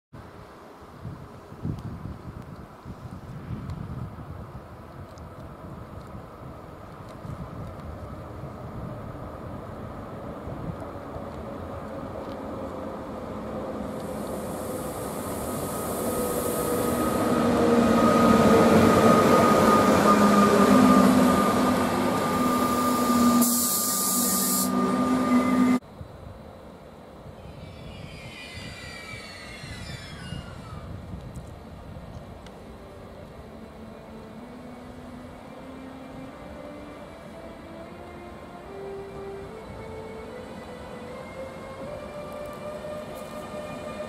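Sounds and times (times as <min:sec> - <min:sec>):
train wheel rumble: 0:01.0 - 0:44.0
electric locomotive traction whine: 0:05.3 - 0:44.0
high whining tones sliding in pitch: 0:14.0 - 0:25.8.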